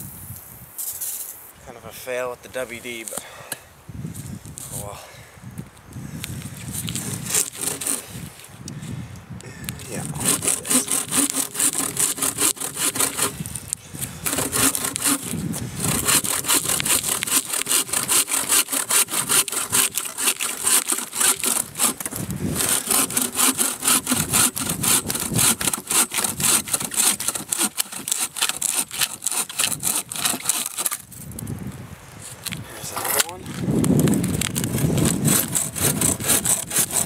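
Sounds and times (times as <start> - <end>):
bow saw cutting log: 6.8 - 8.3, 9.8 - 31.1, 34.3 - 37.0.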